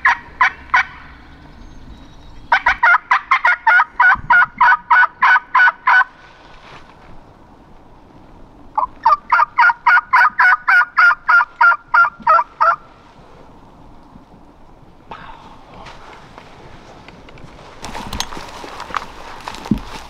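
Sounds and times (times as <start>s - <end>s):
turkey call yelps: 0.0s - 1.1s, 2.5s - 6.1s, 8.8s - 12.8s.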